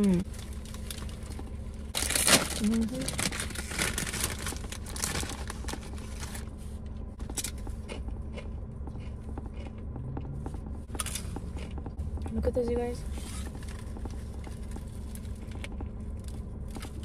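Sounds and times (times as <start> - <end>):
foil snack bag crinkling: 0.2 - 6.4
chip crunching while chewed: 7.2 - 9.9.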